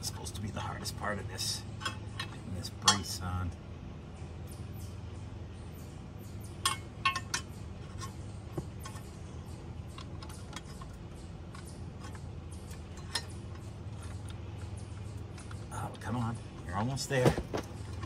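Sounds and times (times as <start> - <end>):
steady low hum: 0.0 - 18.0
small metallic clicks and clinks: 1.4 - 3.2, 6.3 - 18.0.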